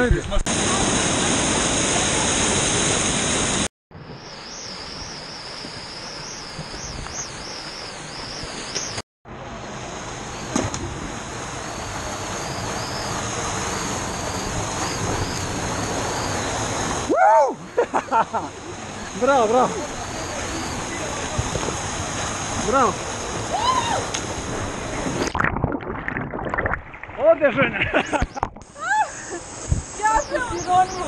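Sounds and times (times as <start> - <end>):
rushing water: 0.4 - 31.0.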